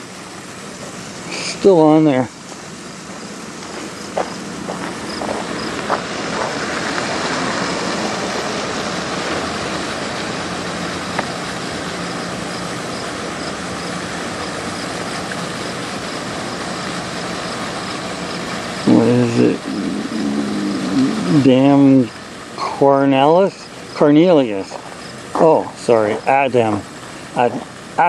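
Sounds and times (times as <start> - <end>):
mechanical drone: 18.8 - 22.1
low hum: 18.9 - 21.8.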